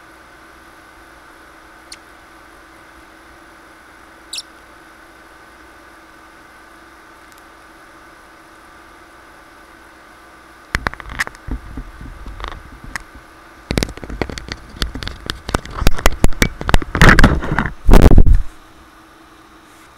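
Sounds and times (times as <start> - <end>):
computer hum: 0.0 - 19.6
knocks and rustling on microphone: 10.8 - 12.9, 13.7 - 18.5.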